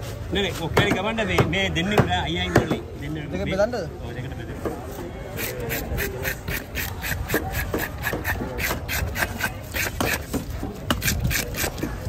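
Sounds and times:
scaler scraping fish scales: 5.3s - 12.0s.

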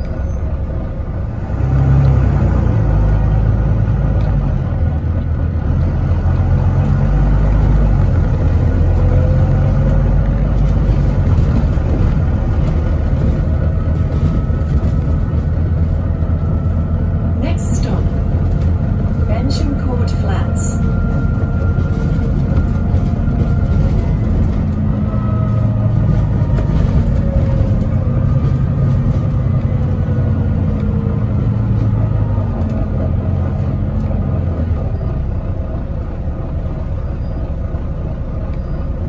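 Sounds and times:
bus diesel engine hum: 0.0s - 39.0s
tyre and road rumble: 0.0s - 39.0s.

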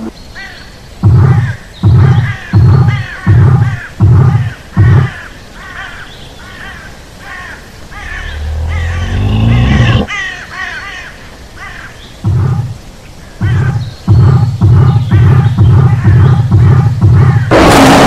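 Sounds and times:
heavy thuds: 1.0s - 5.1s, 13.4s - 18.0s
crow-like cawing: 1.2s - 12.0s, 13.2s - 13.9s, 15.2s - 17.5s
deep dinosaur roar: 8.0s - 10.1s.

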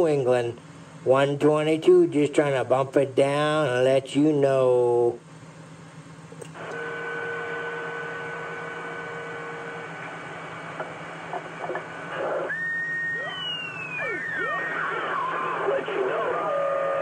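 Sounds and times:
radio static hiss: 6.6s - 17.0s
carrier whistle tones: 12.1s - 17.0s
gliding whistles: 12.2s - 15.8s.

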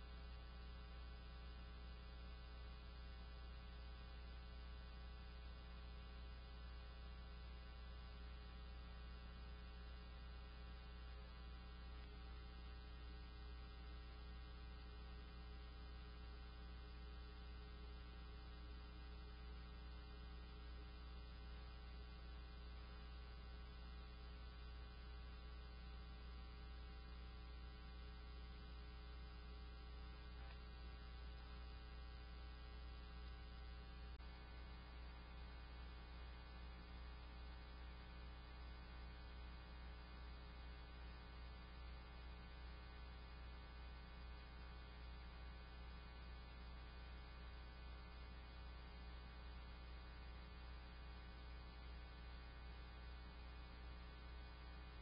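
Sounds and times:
faint electrical hum: 0.0s - 55.0s.

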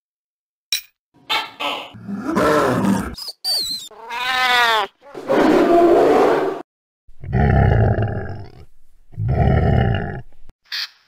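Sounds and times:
cat meowing: 3.9s - 5.0s
long roars: 7.2s - 8.6s, 9.2s - 10.3s.

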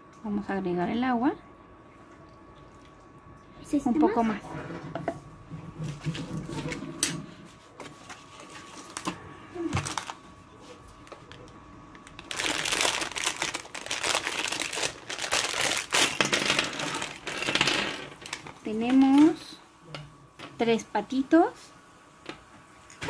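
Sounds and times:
packaging rustling: 7.8s - 19.4s.

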